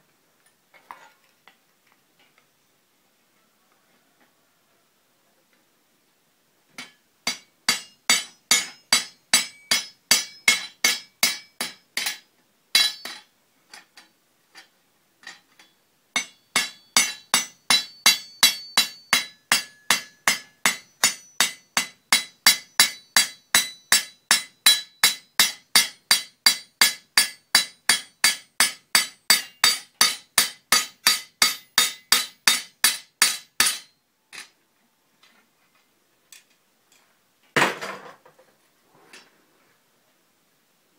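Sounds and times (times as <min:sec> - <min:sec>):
hammer striking rivet on anvil: 0:06.8 - 0:13.3, 0:14.6 - 0:34.5.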